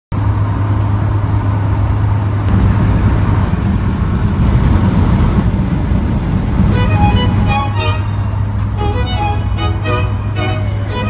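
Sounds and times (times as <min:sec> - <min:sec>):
car road noise from inside: 0:02.5 - 0:11.0.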